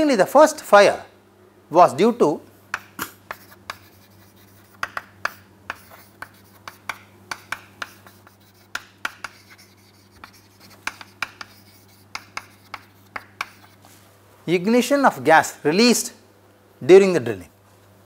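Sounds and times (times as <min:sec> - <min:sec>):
chalk tapping on chalkboard: 0:02.7 - 0:13.8.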